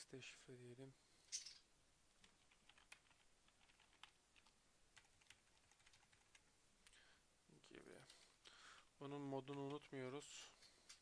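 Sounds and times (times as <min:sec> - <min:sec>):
faint keyboard typing: 0:01.3 - 0:07.0, 0:07.9 - 0:11.0.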